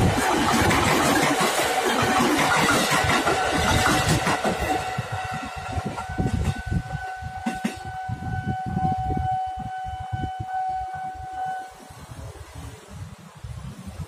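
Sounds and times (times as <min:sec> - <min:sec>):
level crossing alarm tone: 0:05.9 - 0:11.8.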